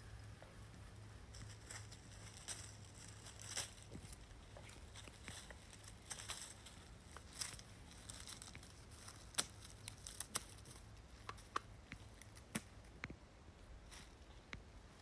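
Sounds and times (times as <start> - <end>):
faint low rumble: 0.0 - 15.0
footsteps in dry leaves: 1.2 - 10.9.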